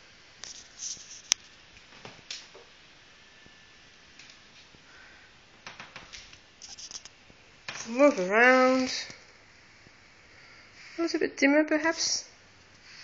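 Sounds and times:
soft rustling and scraping: 0:00.4 - 0:02.2, 0:06.1 - 0:09.9.

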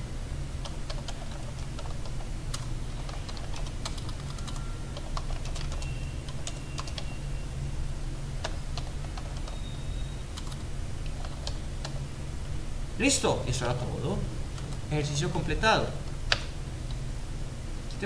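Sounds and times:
low hum: 0:00.0 - 0:18.0
keyboard typing: 0:00.6 - 0:07.2, 0:08.4 - 0:12.0.

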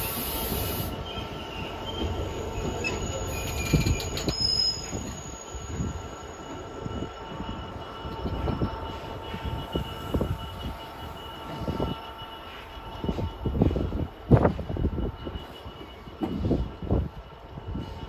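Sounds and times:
high squealing wheels: 0:00.0 - 0:18.0
train wagons rumbling past: 0:00.0 - 0:18.0.

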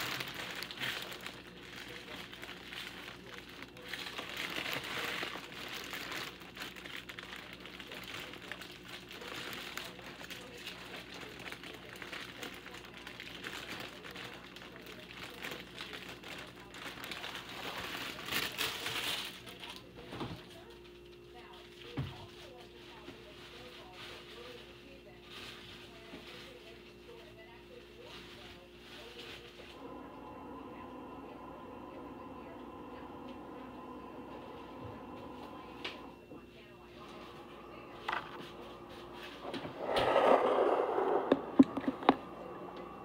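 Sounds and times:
rustling and crinkling with clicks: 0:00.0 - 0:30.0, 0:34.7 - 0:42.9
steady low hum: 0:19.4 - 0:43.0.

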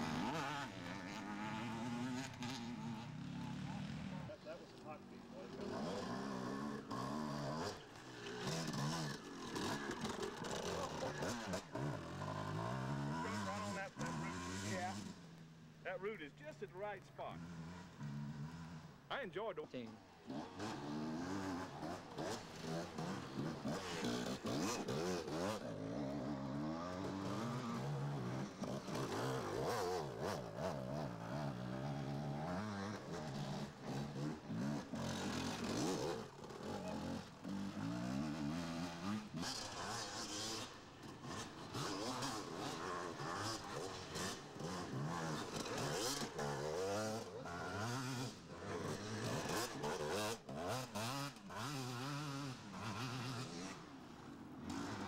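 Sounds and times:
dirt-bike engines revving: 0:00.0 - 0:55.0.

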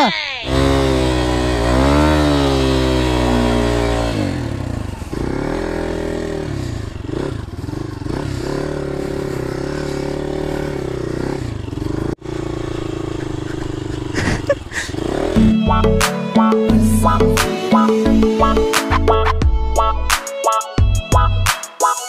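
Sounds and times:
motorcycle engine revving: 0:00.4 - 0:15.8.

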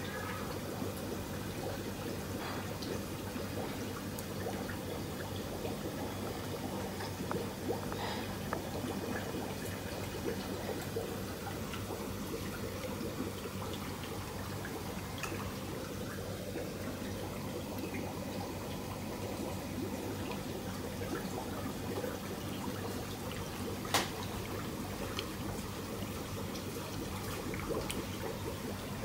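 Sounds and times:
running water in a tank: 0:00.0 - 0:29.0.

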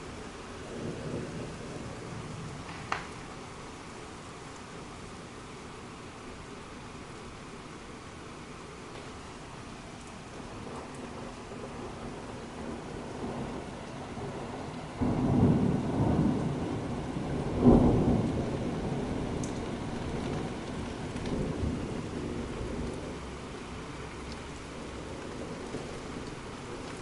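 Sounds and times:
thunder rumbling: 0:00.0 - 0:03.4, 0:10.1 - 0:27.0
heavy rain: 0:00.0 - 0:27.0
sharp thunder clap: 0:14.4 - 0:22.9.

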